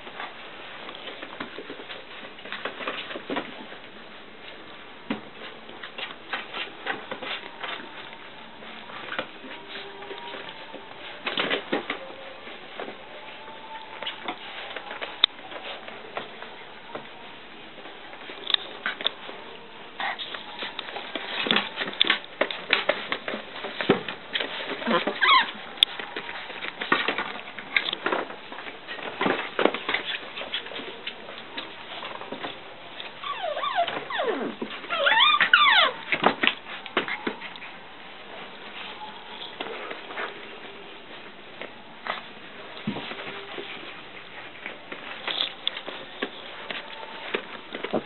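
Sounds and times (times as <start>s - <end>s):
puppy paws scrabbling on wood: 20.0s - 48.0s
puppy squeak: 24.9s - 25.5s, 33.2s - 36.0s.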